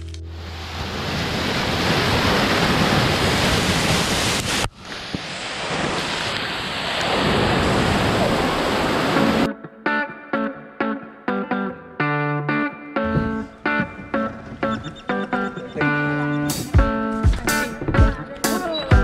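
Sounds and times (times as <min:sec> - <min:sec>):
waterfall roaring: 0:00.4 - 0:09.5.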